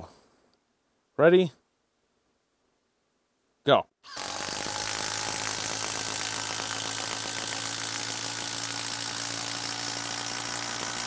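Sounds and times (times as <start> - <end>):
impact driver hammering screw into wood: 4.1 - 11.0.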